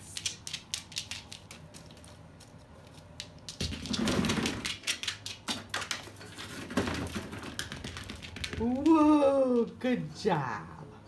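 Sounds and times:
bird claws tapping on hard floor: 6.8 - 9.0.

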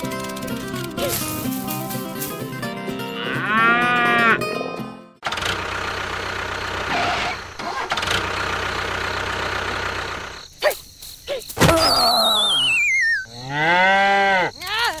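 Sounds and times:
cow mooing: 3.1 - 4.8, 13.3 - 14.6.

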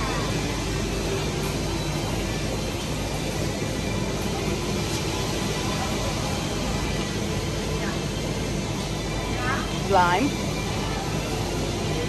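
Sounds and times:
supermarket rumble and hiss: 0.0 - 12.0.

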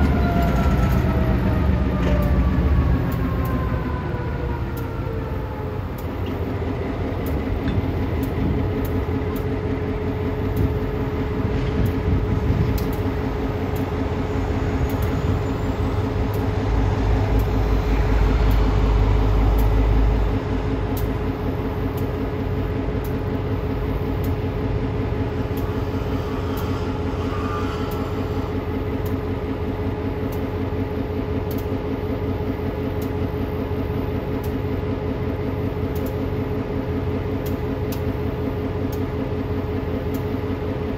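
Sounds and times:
deep low rumble: 0.0 - 30.2
diesel locomotive idling: 0.0 - 40.9.

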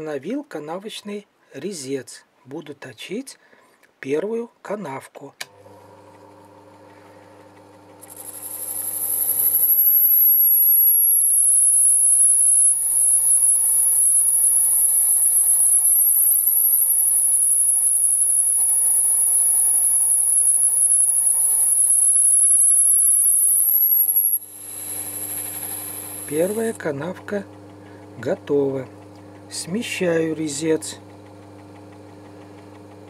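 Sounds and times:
lathe machine hum: 5.6 - 10.2, 12.3 - 33.0
high-pitched cutting squeal: 8.0 - 26.8.

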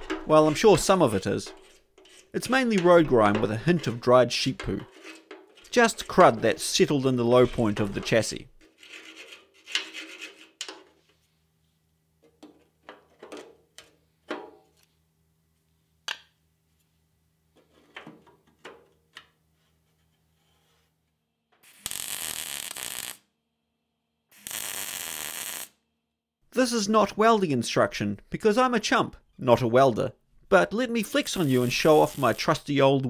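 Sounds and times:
metal scrapes and clicks: 0.0 - 10.8
welding bursts: 21.6 - 23.2, 24.3 - 25.8, 31.3 - 32.6.

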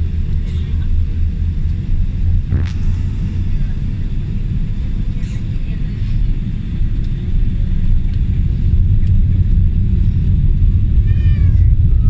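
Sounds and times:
jet engines rumbling in cabin: 0.0 - 12.0.

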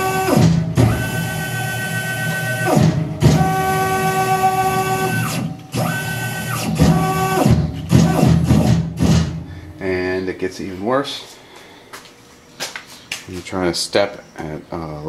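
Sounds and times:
stepper motor whine: 0.0 - 10.0.

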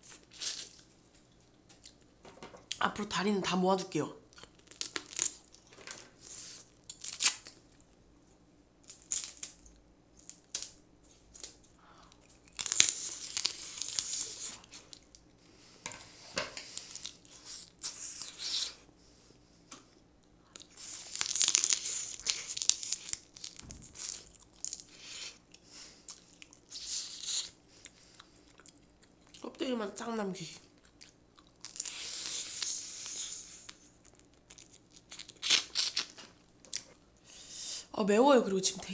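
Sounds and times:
crab shells cracking: 4.4 - 6.0, 11.4 - 15.3, 20.6 - 24.9, 30.9 - 36.9.

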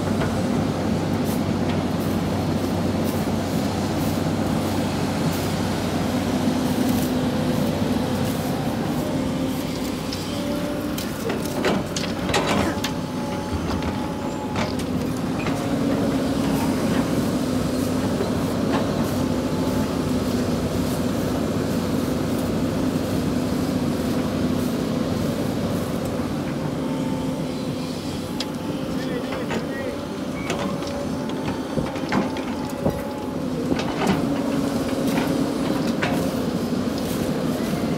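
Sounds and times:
excavator diesel engine running: 0.0 - 37.9.

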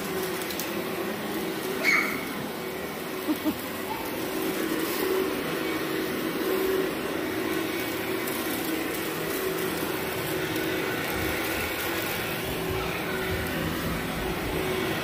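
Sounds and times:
upright vacuum cleaner running: 0.0 - 15.0.

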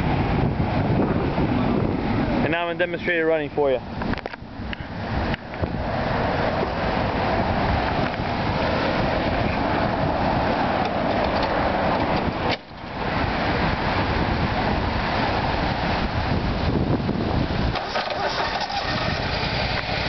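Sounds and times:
lawn mower engine running: 17.2 - 20.0.

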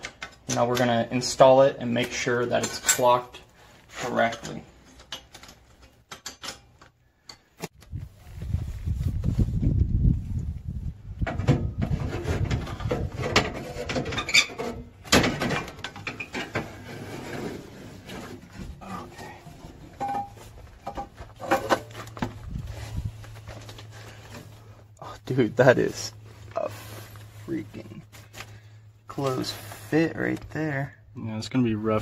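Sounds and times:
metal knocks and scraping: 11.2 - 22.6
low steady hum: 14.8 - 32.0.

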